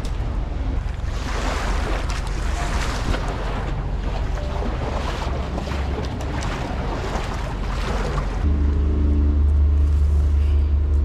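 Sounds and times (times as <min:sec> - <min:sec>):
water lapping: 0:00.0 - 0:08.5
low engine hum: 0:00.0 - 0:11.0.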